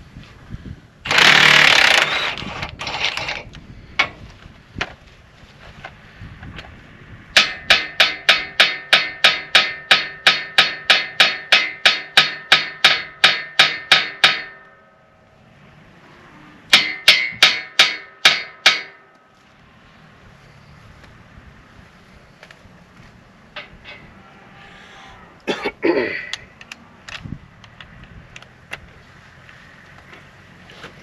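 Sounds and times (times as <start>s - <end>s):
hammer striking steel: 7.4s - 15.0s, 16.7s - 19.1s.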